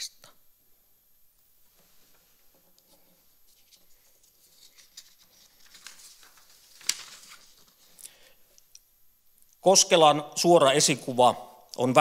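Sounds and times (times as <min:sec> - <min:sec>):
paper rustling: 0:02.8 - 0:08.3
sharp paper crackle: 0:03.5 - 0:08.0.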